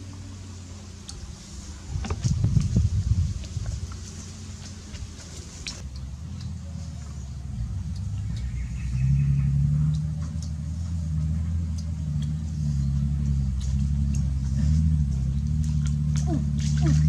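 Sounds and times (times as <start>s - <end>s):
low engine drone: 0.0s - 17.0s.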